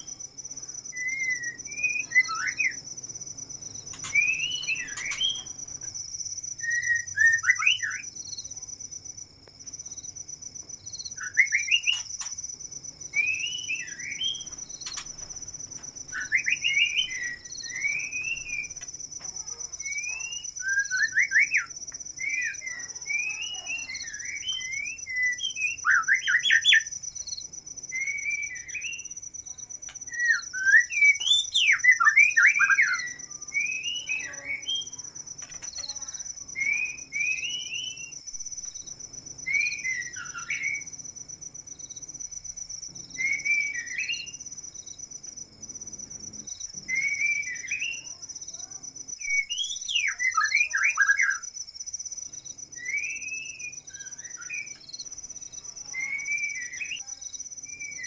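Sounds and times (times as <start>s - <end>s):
cricket trill: 0.0s - 58.0s
birds whistling calls: 0.9s - 2.8s, 3.8s - 5.8s, 6.5s - 8.2s, 11.1s - 12.4s, 13.1s - 15.3s, 16.1s - 18.8s, 19.7s - 26.9s, 28.0s - 29.2s, 30.1s - 38.2s, 39.5s - 40.9s, 43.2s - 44.4s, 46.9s - 48.1s, 49.2s - 51.4s, 52.7s - 54.9s, 56.0s - 57.0s, 57.7s - 58.0s.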